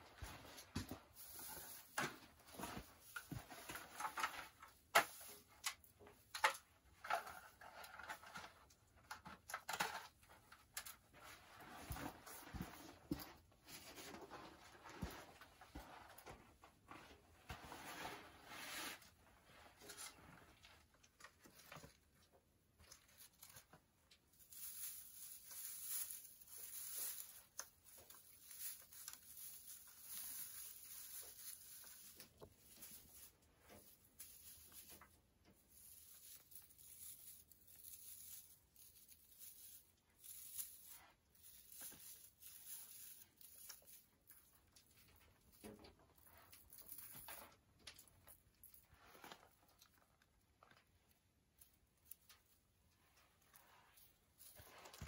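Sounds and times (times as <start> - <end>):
plastic branches crinkling: 0.2 - 12.7, 20.8 - 55.0
small clicks and scrapes: 0.6 - 16.2, 17.5 - 55.0
fabric rustling: 23.2 - 44.4.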